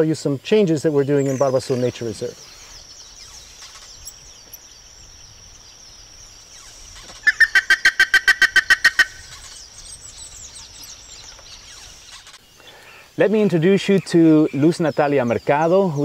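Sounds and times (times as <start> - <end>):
high insect drone: 0.0 - 16.0
faint small-bird chirps: 1.0 - 7.6, 9.0 - 16.0
ibis calling rapid notes: 1.3 - 12.4.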